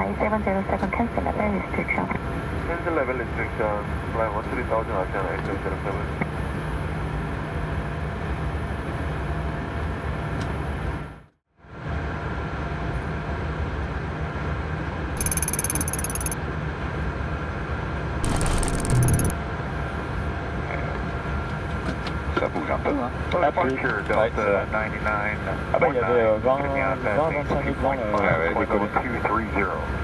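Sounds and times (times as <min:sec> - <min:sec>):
mechanical clatter: 0:15.2 - 0:16.4, 0:18.2 - 0:19.3.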